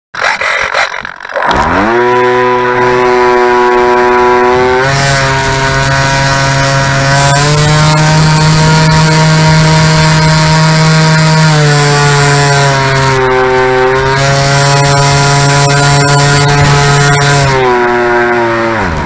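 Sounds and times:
electric motor and propeller whine: 0.2 - 19.0.

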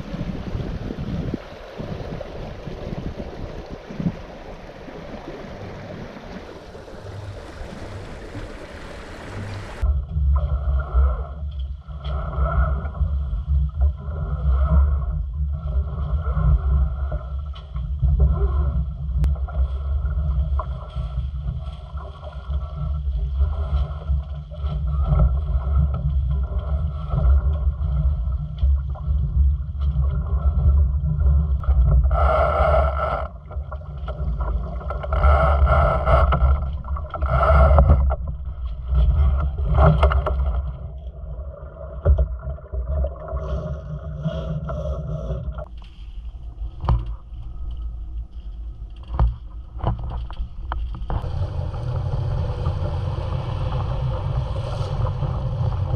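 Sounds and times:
wind buffeting the microphone: 0.0 - 11.4, 50.7 - 55.9
water rushing along a hull: 0.0 - 55.9.

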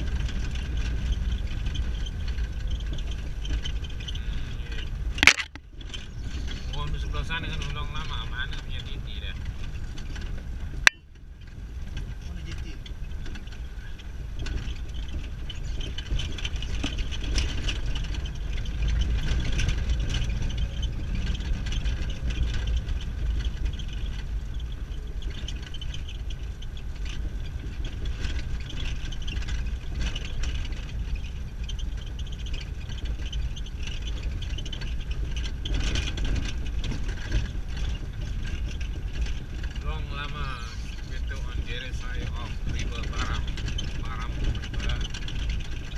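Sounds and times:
engine and road rumble: 0.0 - 45.9
small clicks and knocks: 5.1 - 6.6.

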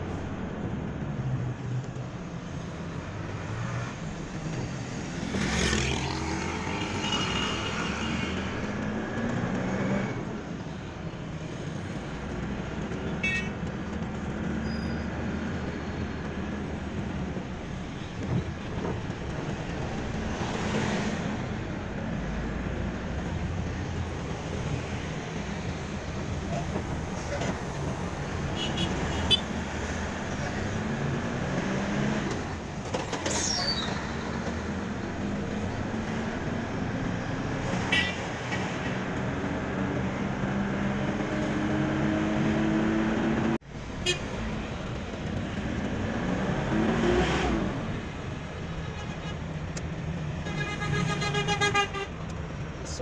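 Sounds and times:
car engine and road hum: 0.0 - 53.0
passing traffic: 0.0 - 53.0.

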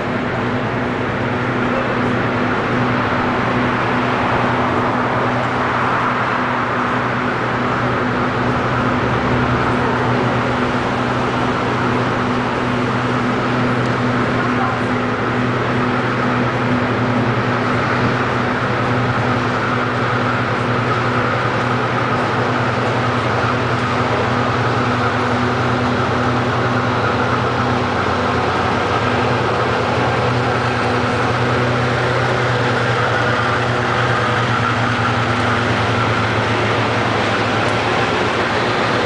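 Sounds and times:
broad rushing noise: 0.0 - 39.0
diesel locomotive engine drone: 0.0 - 39.0.

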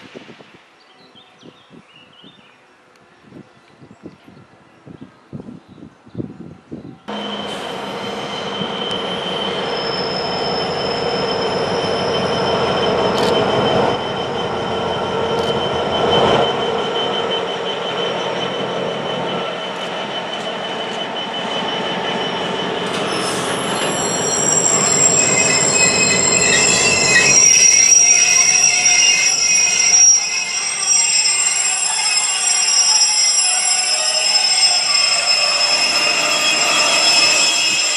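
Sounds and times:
diesel train passing: 7.1 - 37.9
high-pitched wheel squeal: 7.1 - 37.9.

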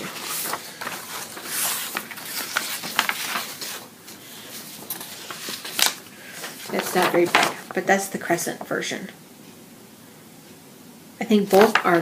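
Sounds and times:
paper crackles: 0.0 - 8.0, 11.4 - 12.0
paper rustling: 0.0 - 8.0, 11.4 - 12.0.

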